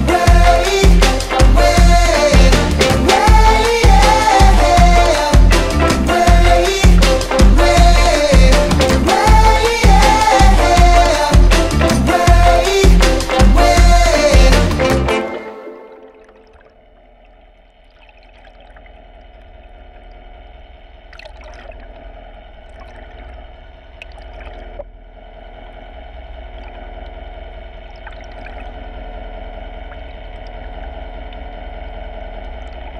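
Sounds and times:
low underwater drone: 0.0s - 32.9s
muffled water movement: 15.7s - 32.9s.

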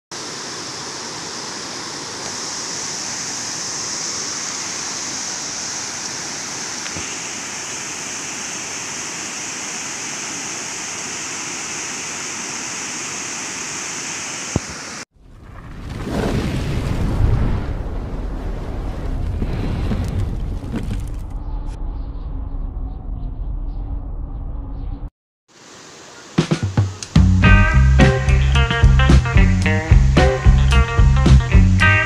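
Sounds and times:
water rushing over weir: 0.1s - 15.0s.

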